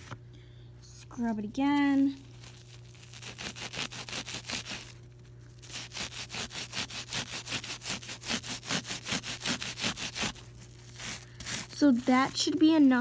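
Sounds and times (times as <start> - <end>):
paper towel scrubbing carpet: 3.0 - 5.0, 5.6 - 13.0.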